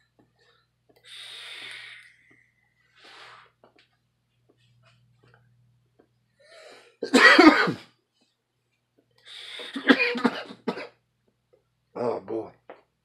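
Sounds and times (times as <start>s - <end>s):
man coughing: 7.0s - 7.8s, 9.6s - 11.0s.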